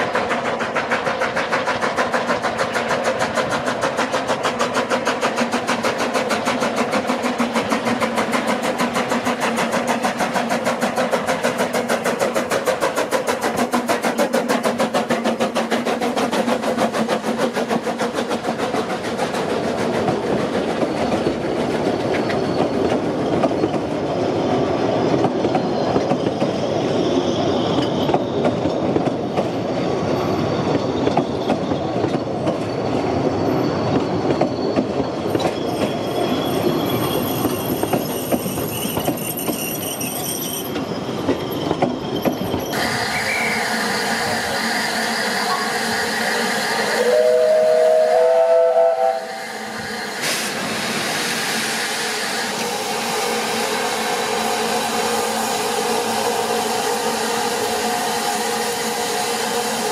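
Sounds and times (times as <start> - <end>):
train wheels clicking over rail joints: 0.0 - 47.7
steam locomotive whistle: 42.8 - 50.6.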